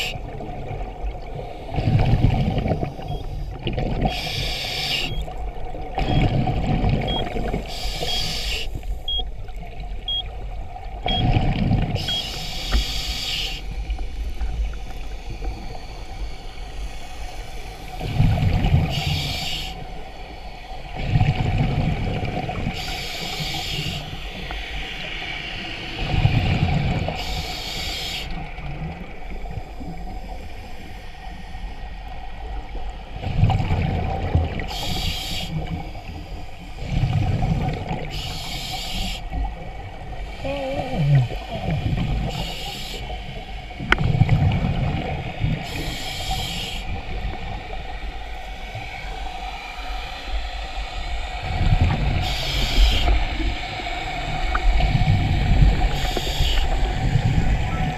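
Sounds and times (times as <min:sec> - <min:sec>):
exhaled air bubbling: 0:00.0 - 0:57.9
regulator hiss on inhale: 0:02.8 - 0:05.3, 0:07.5 - 0:09.1, 0:12.0 - 0:18.2, 0:18.8 - 0:21.0, 0:22.7 - 0:26.2, 0:27.1 - 0:28.6, 0:29.2 - 0:32.4, 0:34.6 - 0:37.1, 0:38.0 - 0:39.6, 0:40.2 - 0:44.0, 0:45.5 - 0:57.6
faint high beep: 0:03.0 - 0:03.4, 0:05.0 - 0:05.3, 0:07.1 - 0:07.4, 0:09.1 - 0:09.3, 0:10.1 - 0:10.3, 0:11.1 - 0:11.3.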